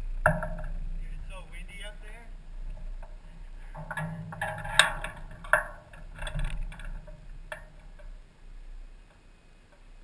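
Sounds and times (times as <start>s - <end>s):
sharp knocks: 0.3s - 1.0s
gear clicking and rustling: 0.4s - 9.9s.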